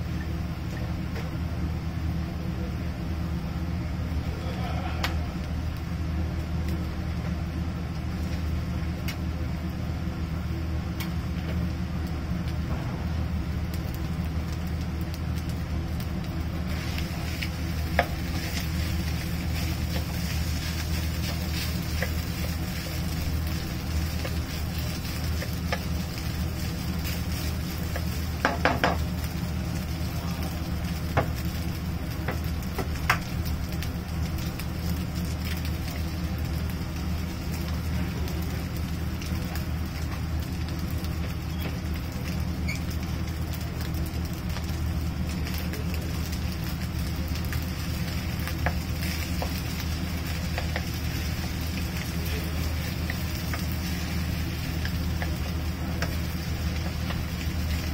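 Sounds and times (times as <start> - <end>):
steady low hum: 0.0 - 57.9
food sizzling in a pan: 10.9 - 57.9.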